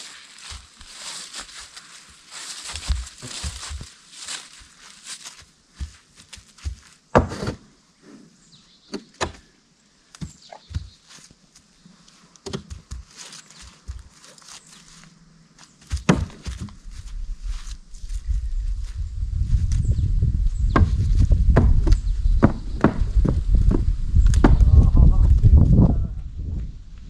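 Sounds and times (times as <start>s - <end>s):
hooves knocking on wooden pallet: 12.5s - 14.2s, 20.7s - 24.8s.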